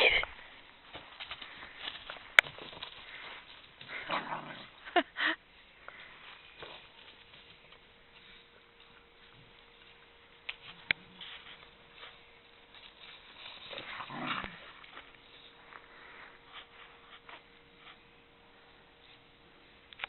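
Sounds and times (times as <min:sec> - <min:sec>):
puppies scuffling: 0:00.9 - 0:04.1, 0:06.0 - 0:18.2.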